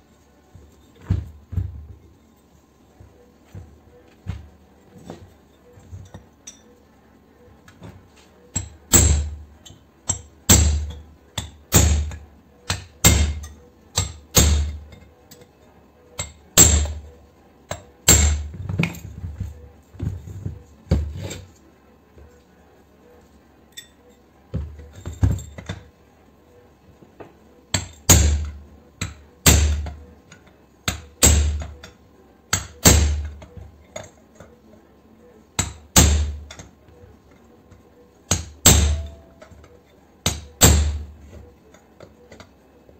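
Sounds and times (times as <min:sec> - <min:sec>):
chisel bar hammering metal: 0:08.5 - 0:09.4, 0:10.1 - 0:14.8, 0:16.2 - 0:17.0, 0:18.0 - 0:18.5, 0:27.7 - 0:29.9, 0:30.9 - 0:31.8, 0:32.5 - 0:33.4, 0:35.6 - 0:36.6, 0:38.3 - 0:39.4, 0:40.2 - 0:41.1.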